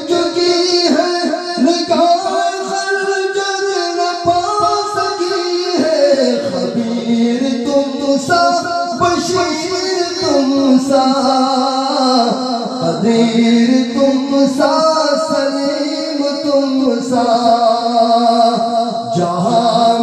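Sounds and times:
man singing into a microphone: 0.0s - 20.0s.

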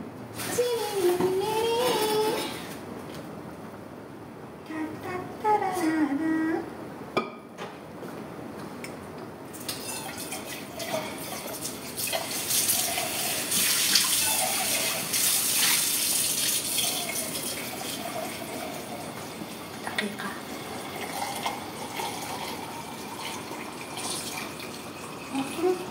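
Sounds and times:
water running from tap: 9.6s - 25.9s.

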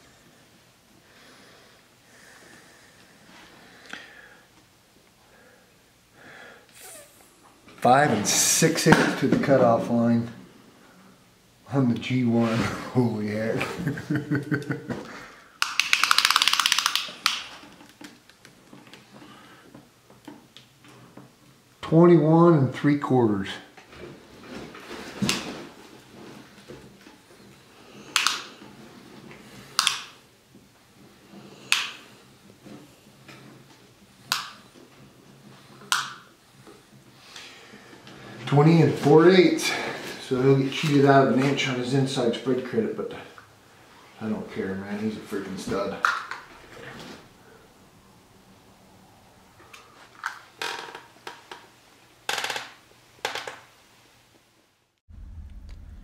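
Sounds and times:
sharp short clicks: 15.6s - 17.5s
faint low hum: 55.1s - 56.0s.

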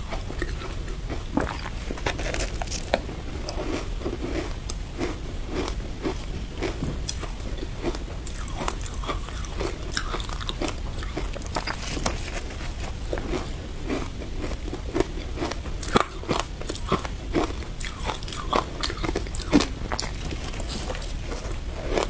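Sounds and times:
teeth crunching ice: 0.0s - 22.0s.

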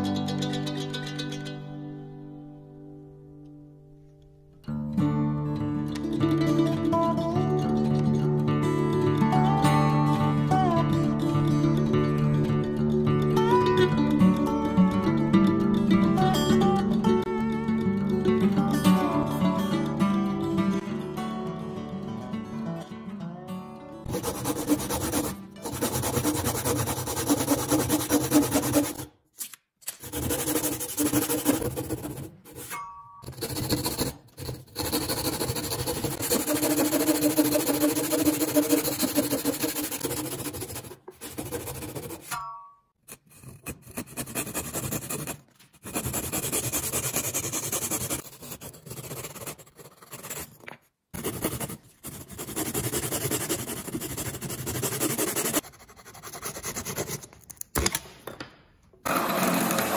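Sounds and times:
backsaw rasping through wood: 24.1s - 29.1s, 30.0s - 32.4s, 33.3s - 42.2s.

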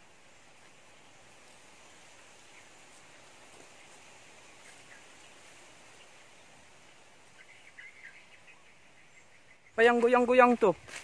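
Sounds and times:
faint bird chirps: 0.0s - 10.5s
high insect hum: 0.0s - 11.0s.

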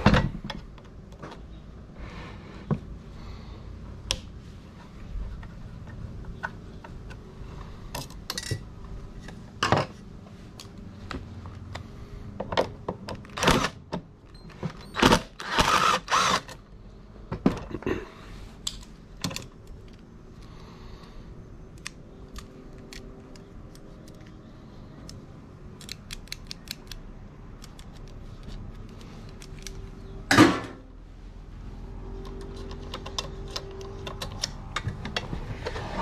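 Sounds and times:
metal parts and tools clicking: 25.8s - 27.0s.

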